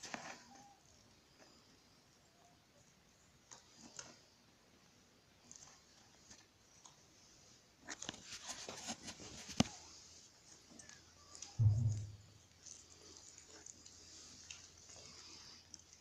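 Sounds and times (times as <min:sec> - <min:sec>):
dull low thump: 0:11.6 - 0:12.4.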